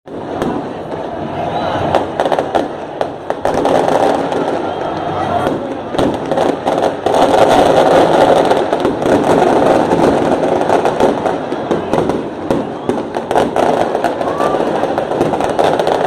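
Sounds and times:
stadium crowd chanting and cheering: 0.2s - 6.0s.

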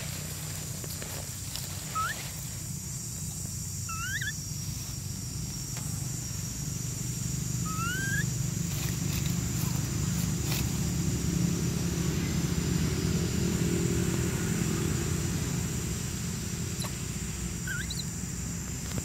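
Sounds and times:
rising whistle-like calls: 3.9s - 4.4s, 7.6s - 8.3s, 17.6s - 18.1s.

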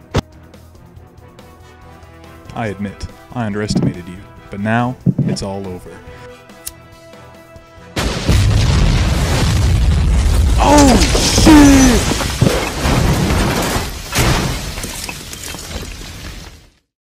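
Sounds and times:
rumbling explosion blast: 8.0s - 14.9s.

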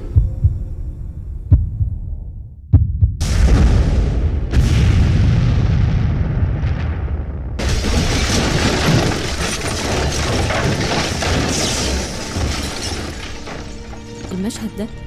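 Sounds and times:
explosion rush and rumble: 1.5s - 13.3s
clattering and shattering debris: 7.6s - 15.0s.

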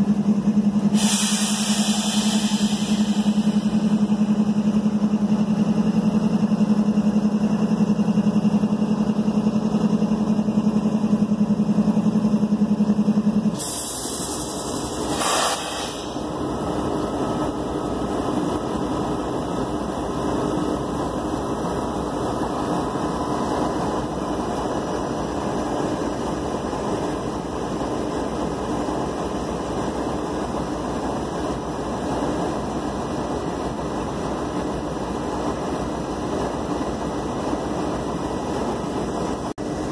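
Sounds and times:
locomotive engines idling: 0.0s - 39.9s
short bursts of hiss: 1.0s - 3.5s, 13.6s - 16.2s.

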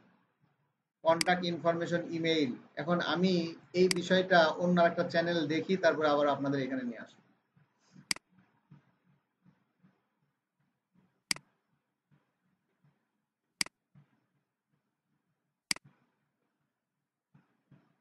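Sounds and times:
faint ticking: 1.1s - 1.7s, 3.0s - 5.2s.

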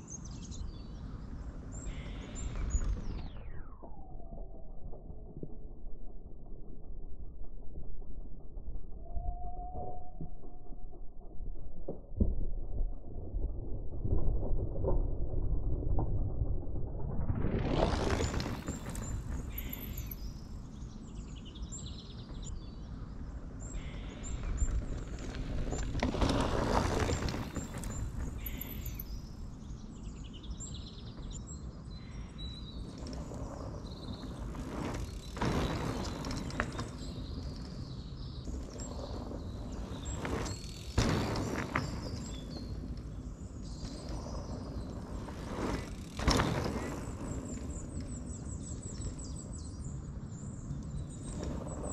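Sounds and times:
small birds chirping: 0.0s - 3.5s, 18.1s - 25.9s, 26.7s - 51.9s
mountain bike rolling on dirt: 0.0s - 51.9s
wind rumbling on microphone: 0.0s - 51.9s.

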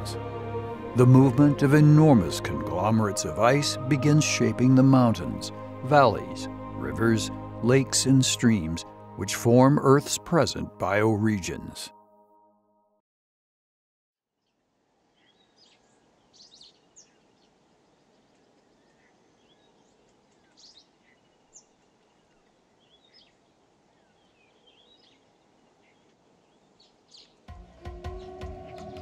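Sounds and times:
low steady hiss: 14.4s - 27.5s
bird chirps and calls: 15.2s - 27.5s.

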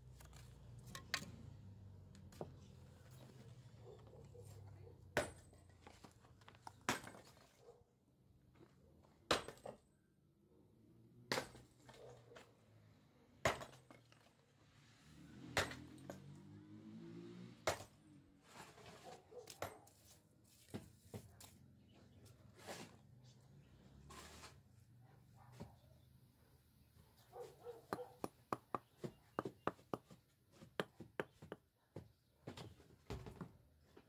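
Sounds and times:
metal tool striking stone: 27.9s - 30.1s.

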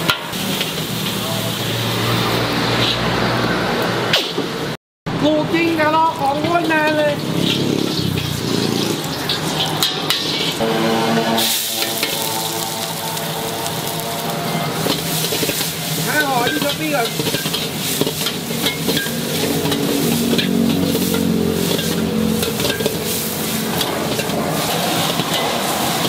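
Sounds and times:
food frying in wok: 0.0s - 26.0s
wok sizzling: 0.0s - 26.0s
metal spatula scraping a wok: 6.5s - 26.0s.

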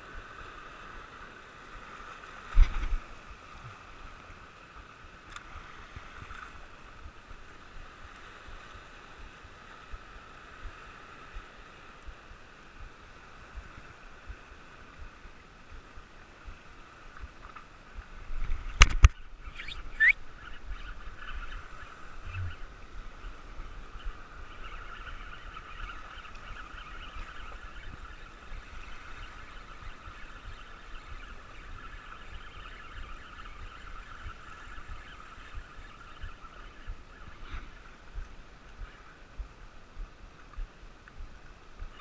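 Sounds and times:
fishing reel whirring: 23.2s - 37.8s.

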